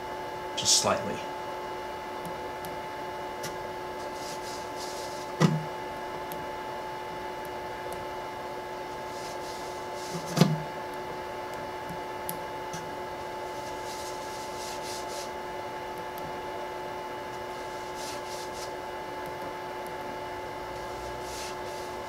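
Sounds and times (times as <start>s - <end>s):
printer humming: 0.7s - 22.0s
card brushing softly: 4.0s - 5.3s, 9.0s - 10.4s, 13.5s - 15.3s, 17.6s - 18.8s, 20.8s - 22.0s.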